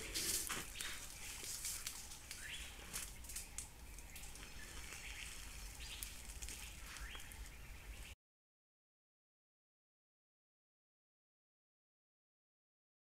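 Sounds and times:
dry leaves crackling underfoot: 0.0s - 8.1s
bird chirps: 0.1s - 8.2s.

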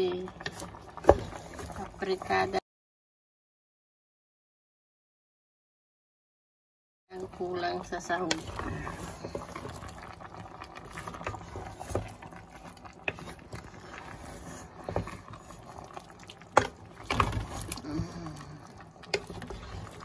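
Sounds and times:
food stirred in a pot: 0.0s - 2.6s, 7.1s - 20.0s.

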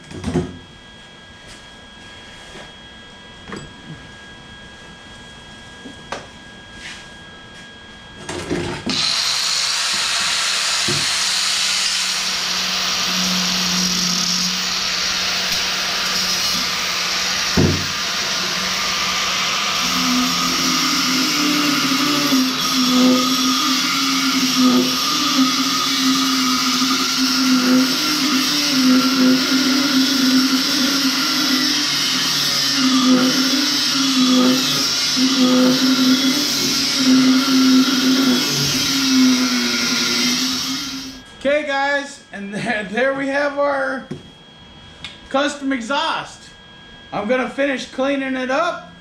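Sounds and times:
angle grinder grinding metal: 8.9s - 41.2s.

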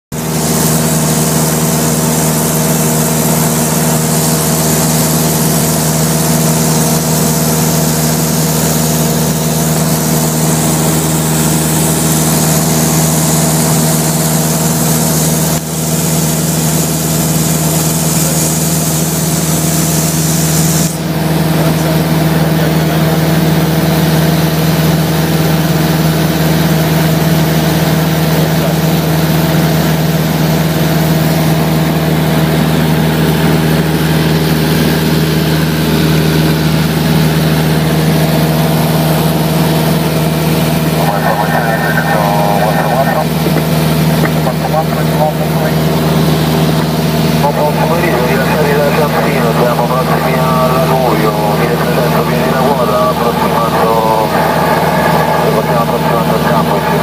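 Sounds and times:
aircraft engine and propeller: 0.1s - 57.0s.

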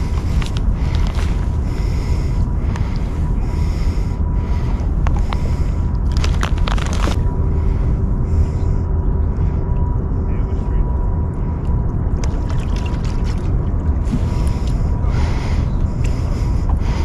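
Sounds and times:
fishing tackle clicks and rustles: 0.0s - 2.0s, 5.0s - 7.3s
wind buffeting microphone: 0.0s - 17.0s.

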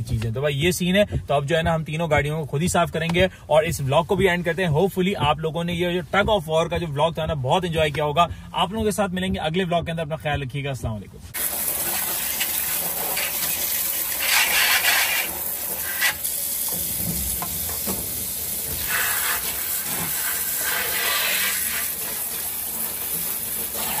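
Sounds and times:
tap water running and splashing: 11.4s - 24.0s.

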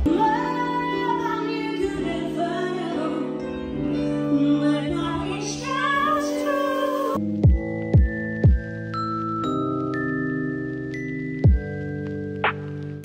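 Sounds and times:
woman singing: 0.0s - 7.2s.

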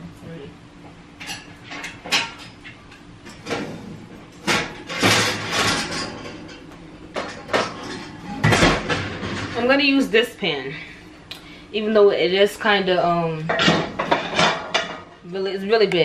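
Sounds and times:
pots and pans clanking: 1.2s - 9.6s, 13.5s - 15.2s.

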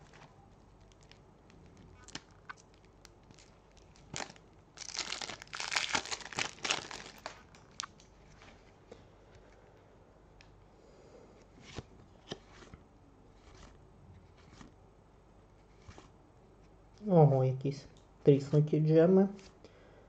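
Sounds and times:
shrink-wrap crinkling and tearing: 0.0s - 8.5s.

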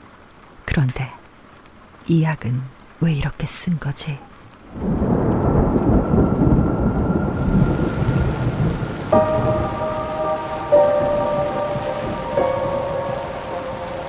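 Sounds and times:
steady rain: 0.0s - 14.0s
thunder rumbling: 4.6s - 14.0s
held musical notes: 5.9s - 14.0s.

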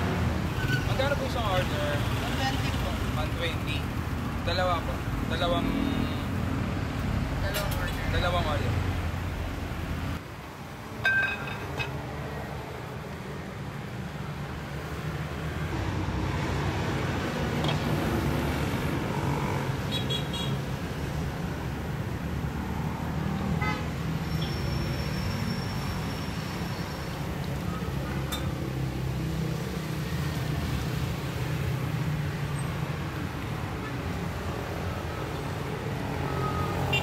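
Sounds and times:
road traffic rumble: 0.0s - 37.0s
ladle clinking on bowl and pot: 11.0s - 12.0s.

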